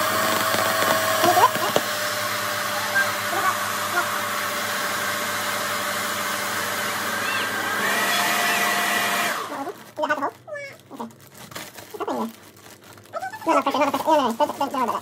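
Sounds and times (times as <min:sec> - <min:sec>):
hair dryer running: 0:00.0 - 0:09.8.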